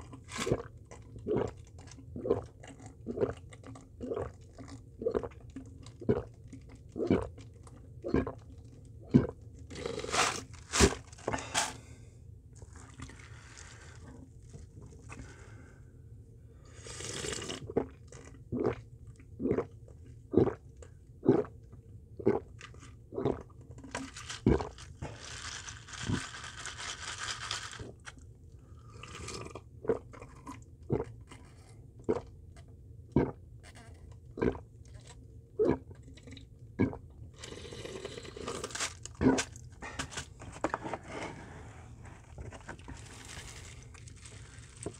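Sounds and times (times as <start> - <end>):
person gulping a drink: 0.0 - 10.5, 12.6 - 13.4, 16.8 - 25.2, 28.8 - 40.8
ice moving in plastic cup: 9.7 - 11.7, 12.6 - 14.2, 23.9 - 28.2, 37.4 - 44.9.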